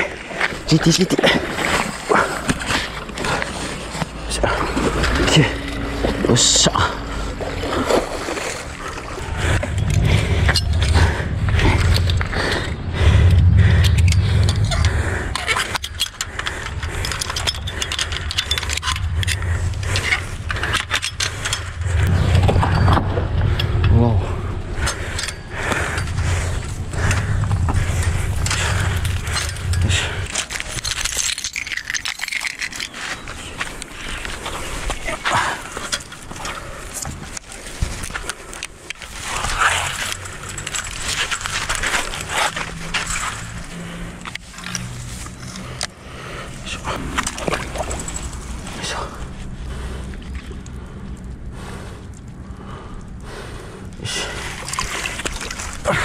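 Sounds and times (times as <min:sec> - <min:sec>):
low rumble: 0:02.2 - 0:35.7
person breathing hard: 0:09.0 - 0:22.4, 0:23.4 - 0:31.4, 0:45.3 - 0:56.0
metal gaff clinking on railing: 0:13.4 - 0:24.0, 0:24.7 - 0:49.3.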